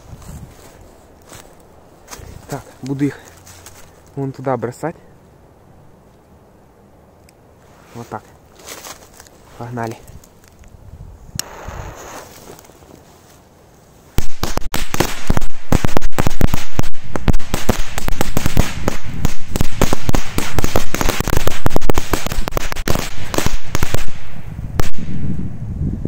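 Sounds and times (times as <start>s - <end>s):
firecrackers banging: 14.2s - 25.2s.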